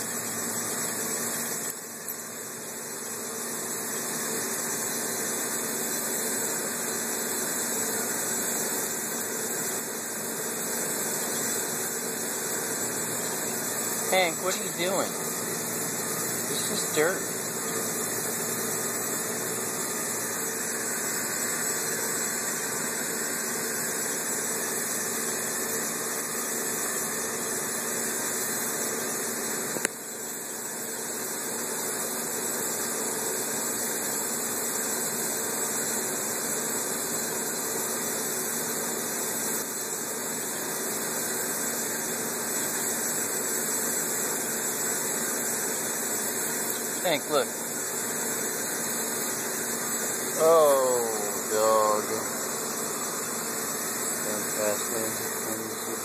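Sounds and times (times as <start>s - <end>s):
steady hum: 0.0s - 31.3s, 33.5s - 56.0s
even hiss: 10.4s - 26.7s, 40.6s - 56.0s.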